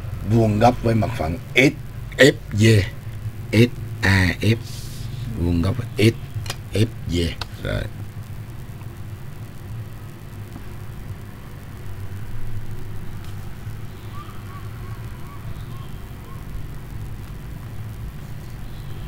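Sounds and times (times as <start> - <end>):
low background rumble: 0.0 - 19.0
faint high chirps: 13.6 - 16.8.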